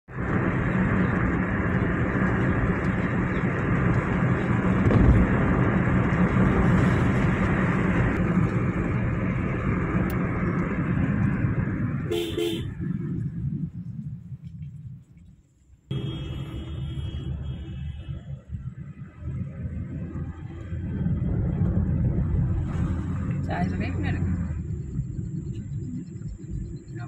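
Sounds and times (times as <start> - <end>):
car road and wind noise: 0.0 - 27.0
car horn toot: 12.0 - 12.8, 15.9 - 18.3.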